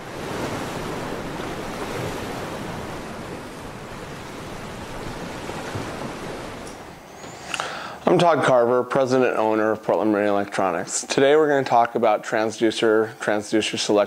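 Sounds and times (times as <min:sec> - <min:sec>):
ocean surf rushing: 0:00.0 - 0:10.9.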